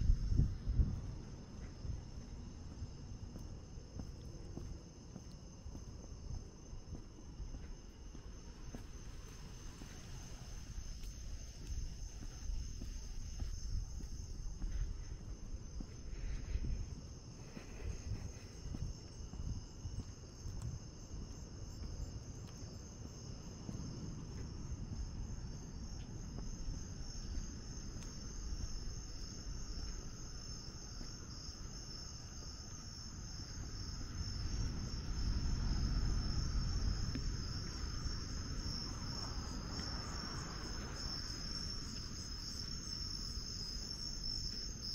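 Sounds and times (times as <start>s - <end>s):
night insects trilling: 0.0s - 44.9s.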